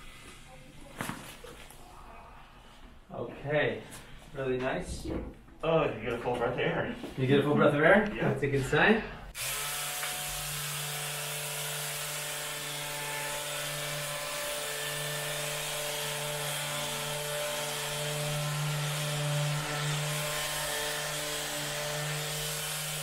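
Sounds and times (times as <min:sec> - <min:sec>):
electric massager buzzing: 0:09.3 - 0:23.0.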